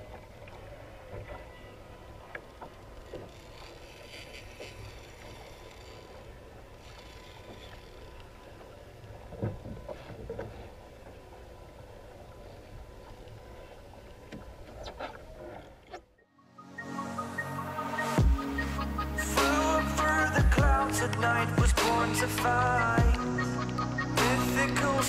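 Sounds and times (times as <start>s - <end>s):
water lapping against hull: 0.0s - 16.2s.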